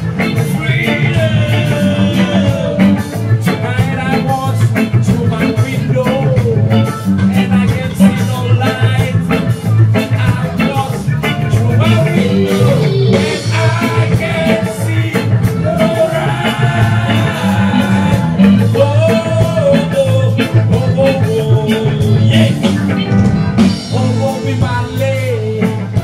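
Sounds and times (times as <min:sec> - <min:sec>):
lead singer vocals: 0:00.0 - 0:26.0
live reggae band playing: 0:00.0 - 0:26.0.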